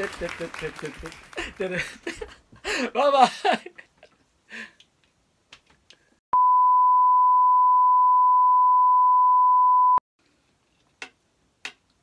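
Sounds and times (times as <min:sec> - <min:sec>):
steady electronic beep tone: 0:06.4 - 0:10.0.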